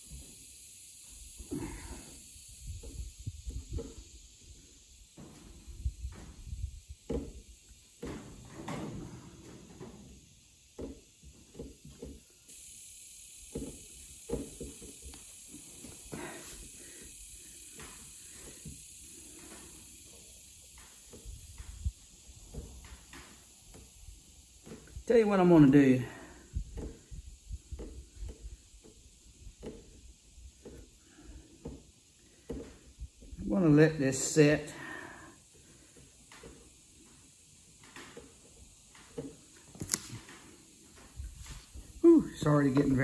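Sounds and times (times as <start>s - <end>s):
faint steady hiss: 0.0s - 43.0s
fingers knocking and rubbing putty: 13.5s - 15.2s.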